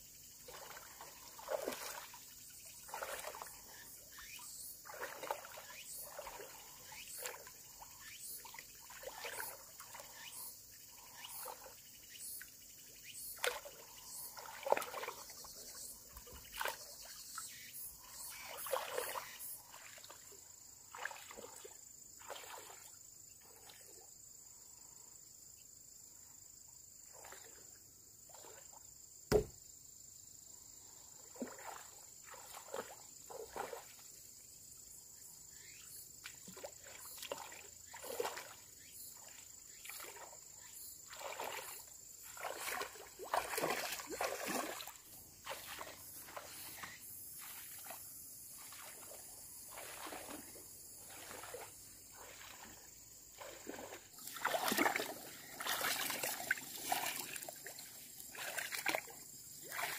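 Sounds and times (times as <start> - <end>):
high insect trill: 0.0 - 59.9
water splashing: 0.4 - 10.3, 13.4 - 17.1, 18.0 - 23.7, 31.3 - 34.1, 36.2 - 59.9.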